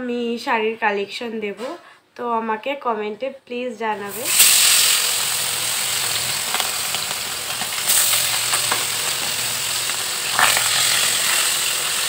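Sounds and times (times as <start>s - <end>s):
fish sizzling in hot oil: 4.0s - 12.0s
metal spatula scraping: 10.3s - 11.5s.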